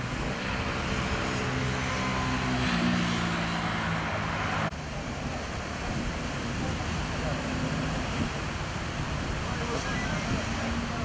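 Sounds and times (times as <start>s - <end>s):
passing vehicle engine hum: 0.0s - 11.0s
tyre and road noise: 0.0s - 11.0s.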